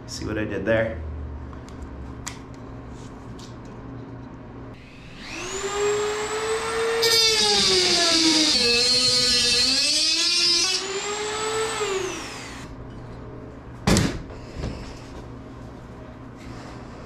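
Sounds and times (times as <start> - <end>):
rotary tool whining cutting metal: 5.0 - 12.7.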